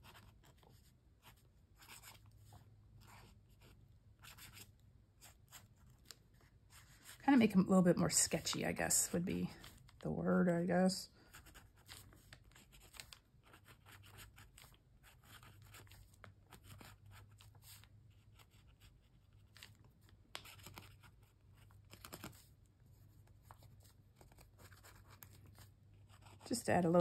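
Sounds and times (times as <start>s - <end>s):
marker pen scratching on paper: 0.0s - 7.4s, 11.3s - 19.8s, 20.4s - 22.5s, 23.2s - 27.0s.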